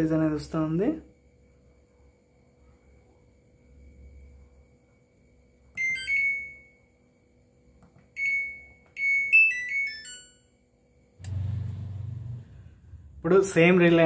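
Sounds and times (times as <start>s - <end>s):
low buzz: 11.2s - 13.6s.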